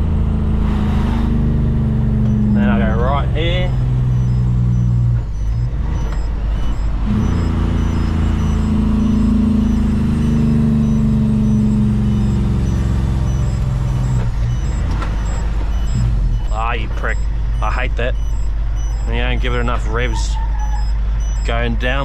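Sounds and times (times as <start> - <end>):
truck diesel engine from cab: 0.0 - 22.0.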